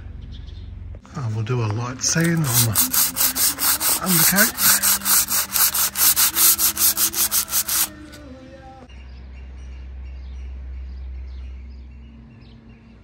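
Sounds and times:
sandpaper rubbing: 2.1s - 8.2s.

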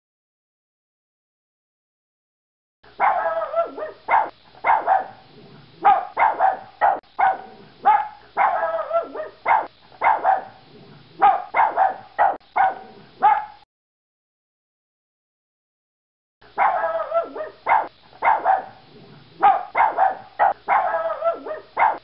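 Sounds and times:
small dog barking: 3.0s - 10.6s, 11.2s - 13.6s, 16.6s - 18.8s, 19.4s - 22.0s.

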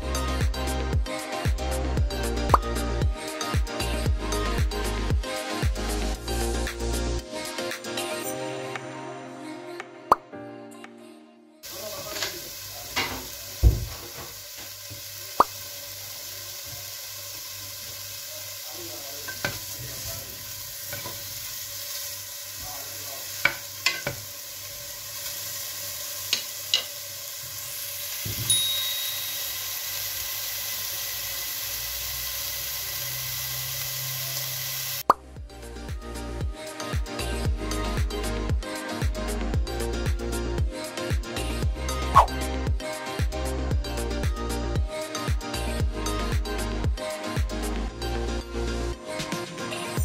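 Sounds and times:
bacon sizzling in a pot: 11.6s - 35.1s.

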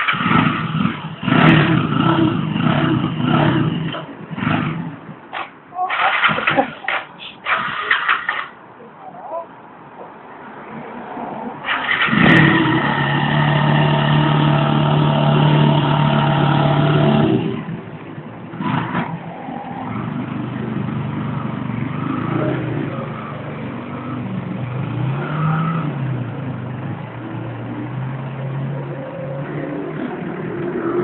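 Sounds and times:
motorcycle engine revving: 0.0s - 5.0s, 11.6s - 17.7s
street traffic: 0.0s - 31.0s.

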